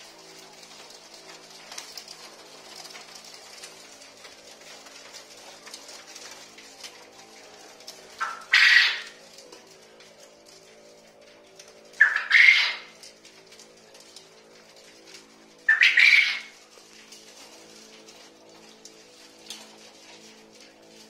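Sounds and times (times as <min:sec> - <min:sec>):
quail chirping softly: 0:08.2 - 0:09.2, 0:12.0 - 0:12.9, 0:15.7 - 0:16.6
quail crowing: 0:08.2 - 0:09.2, 0:12.0 - 0:13.0, 0:15.6 - 0:16.7.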